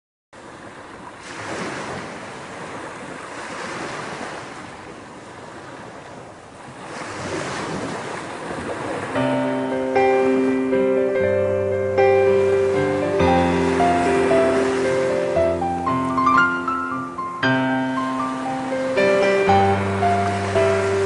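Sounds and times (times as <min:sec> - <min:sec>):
ocean surf on a beach: 0:00.4 - 0:21.0
music: 0:09.2 - 0:21.0.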